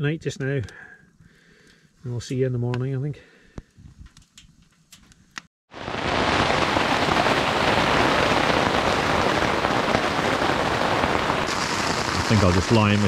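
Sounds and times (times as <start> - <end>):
rain on a tent: 5.7 - 13.0.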